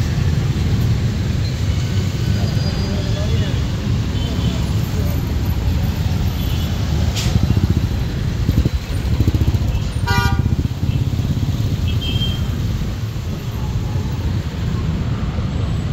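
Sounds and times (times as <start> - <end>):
street traffic engines: 0.0 - 15.9
vehicle horn honk: 10.0 - 10.6.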